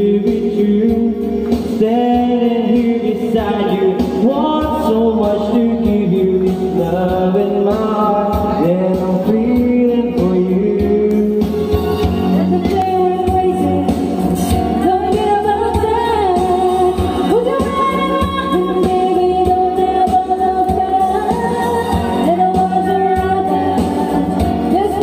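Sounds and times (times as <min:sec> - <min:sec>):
man singing into microphone: 0:00.0 - 0:14.2
amplified backing music: 0:00.0 - 0:25.0
woman singing into microphone: 0:12.2 - 0:25.0.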